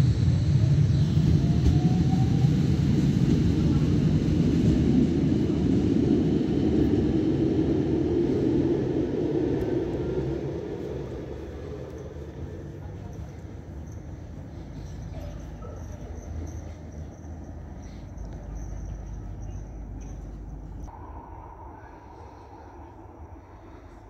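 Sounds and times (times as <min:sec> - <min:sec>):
tram rumble: 0:00.0 - 0:24.0
faint rising whine: 0:05.5 - 0:24.0.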